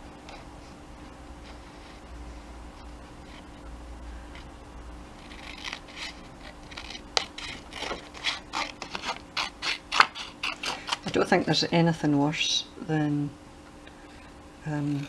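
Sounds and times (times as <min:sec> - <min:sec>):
scissors snipping paper: 0:05.2 - 0:11.2.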